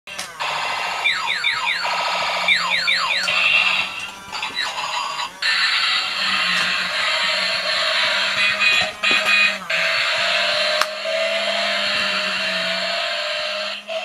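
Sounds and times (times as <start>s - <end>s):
toy electronic laser zaps: 0.1s - 14.0s
toy harsh whir: 0.1s - 14.0s.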